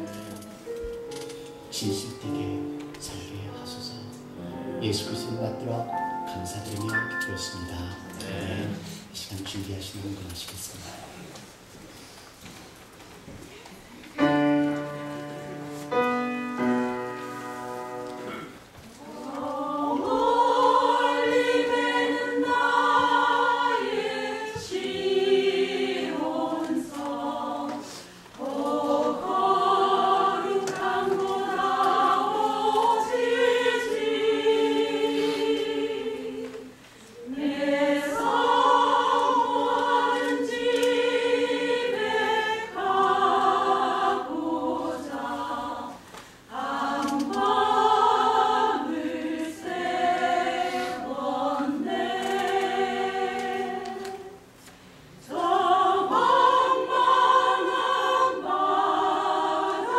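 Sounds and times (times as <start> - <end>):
instrumental notes: 0.0 - 8.9
women's choir singing a hymn: 14.2 - 54.5, 55.2 - 59.9.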